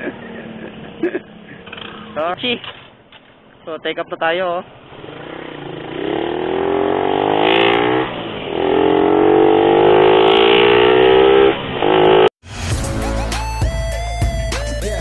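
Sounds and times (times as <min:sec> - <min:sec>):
motorcycle engine accelerating: 0:00.0 - 0:02.4, 0:04.8 - 0:12.3.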